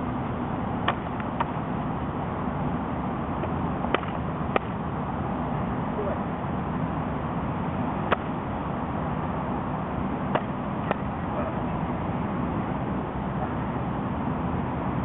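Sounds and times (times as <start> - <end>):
steady background noise: 0.0 - 15.0.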